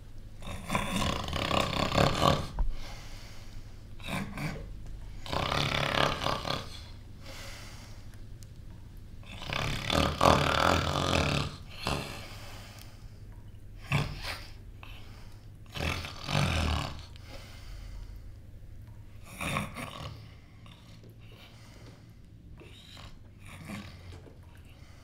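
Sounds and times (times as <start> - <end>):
man snoring: 0.4 - 2.6, 5.2 - 7.0, 9.3 - 12.3, 15.7 - 17.2, 19.2 - 21.0.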